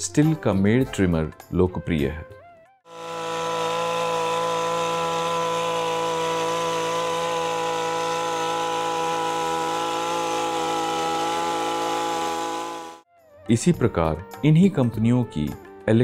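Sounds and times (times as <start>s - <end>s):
hedge trimmer engine running: 2.9s - 13.1s.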